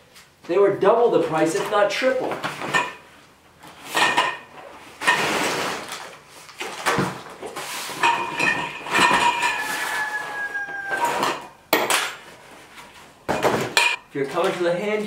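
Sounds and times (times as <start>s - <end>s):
cardboard rustling and scraping: 4.7s - 8.6s, 12.2s - 15.0s.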